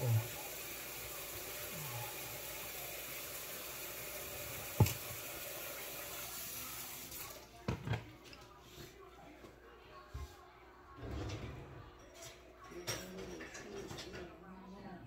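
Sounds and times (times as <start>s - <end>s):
water running from a tap: 0.0s - 7.4s.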